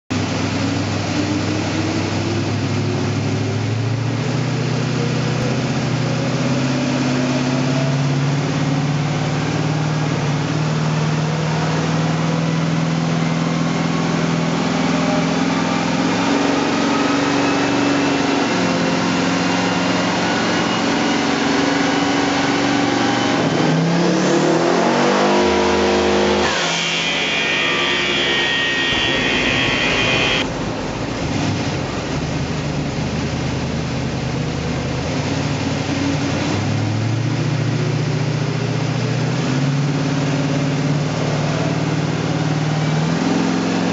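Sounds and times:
high whine: 0:25.4 - 0:31.0.

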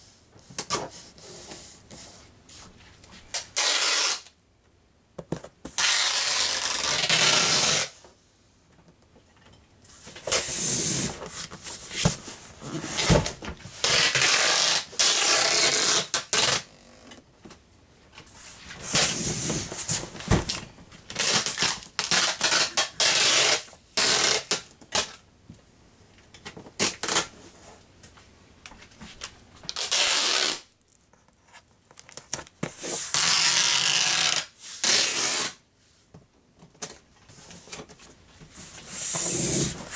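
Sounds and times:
packing tape pulled from dispenser: 0:03.3 - 0:04.3, 0:05.8 - 0:08.0, 0:13.8 - 0:16.7, 0:21.1 - 0:25.1, 0:29.7 - 0:30.8, 0:33.0 - 0:35.6.

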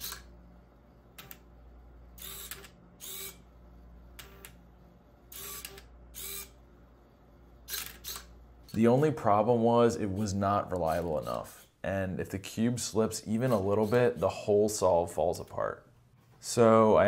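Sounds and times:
low steady hum: 0:00.0 - 0:17.0
motor whirring bursts: 0:02.2 - 0:03.4, 0:05.3 - 0:06.6.

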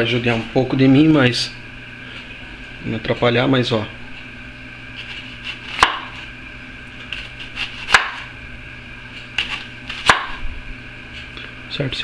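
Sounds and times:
steady background hum: 0:00.0 - 0:12.0
knife slicing onion on wooden board: 0:05.0 - 0:06.2, 0:07.1 - 0:08.3.

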